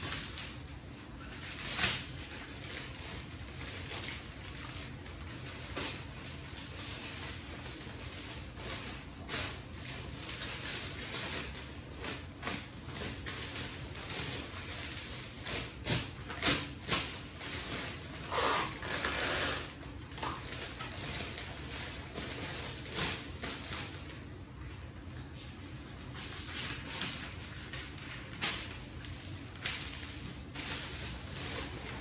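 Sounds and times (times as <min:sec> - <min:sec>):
paper wrapping rustling: 0:00.0 - 0:32.0.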